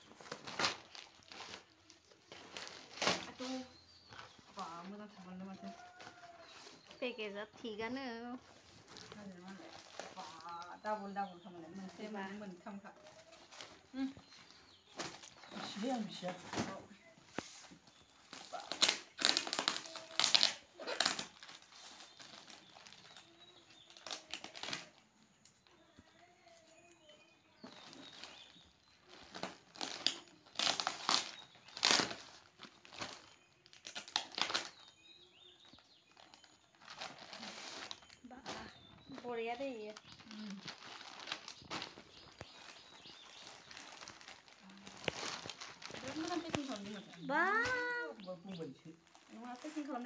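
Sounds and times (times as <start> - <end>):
plastic packaging crinkling: 0.0 - 25.0, 27.6 - 48.1, 48.9 - 50.0.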